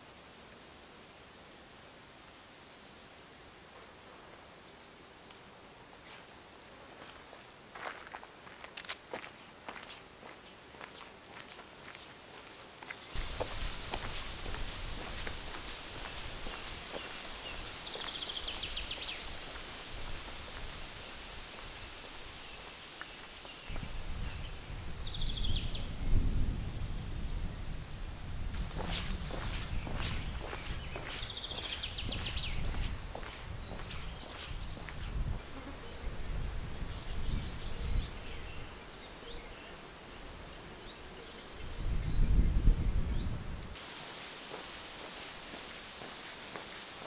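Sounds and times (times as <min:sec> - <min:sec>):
steady hiss: 0:00.0 - 0:47.0
wind rumbling on microphone: 0:13.2 - 0:22.6, 0:23.6 - 0:38.8, 0:41.6 - 0:43.8
bird chirps: 0:29.8 - 0:35.1.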